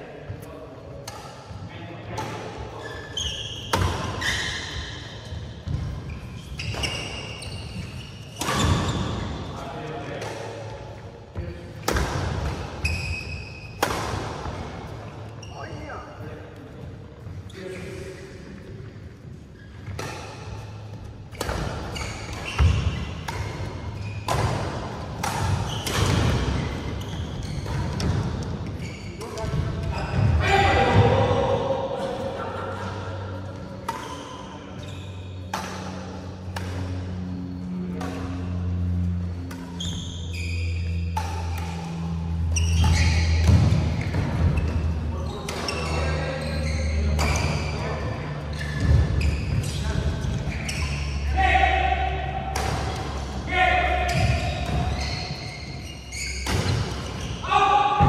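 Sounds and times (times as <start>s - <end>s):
shoes squeaking on court floor: 1.0s - 9.6s, 10.2s - 31.0s, 33.1s - 51.4s, 52.6s - 58.0s
rackets hitting shuttlecock: 11.8s - 15.0s, 19.8s - 29.9s, 33.5s - 40.0s, 40.7s - 46.1s, 47.0s - 47.8s, 52.0s - 55.4s, 56.3s - 57.2s.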